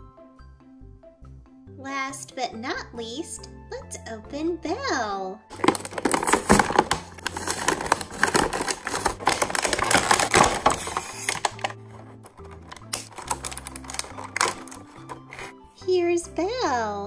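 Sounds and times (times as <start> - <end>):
light background music: 0.0 - 17.0
plastic packaging crinkling: 5.5 - 15.6.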